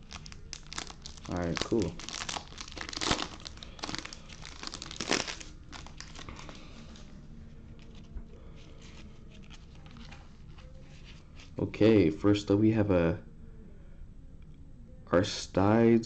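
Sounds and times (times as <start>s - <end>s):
foil wrapper crinkling and tearing: 0.0s - 7.1s, 7.8s - 11.6s
cards rustling: 0.0s - 11.6s.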